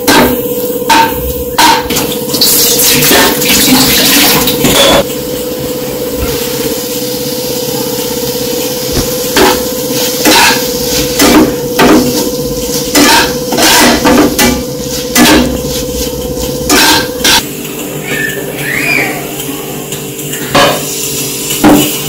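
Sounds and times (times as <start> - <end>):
steady hum: 0.0 - 22.0
metal spatula scraping a pan: 9.3 - 17.4.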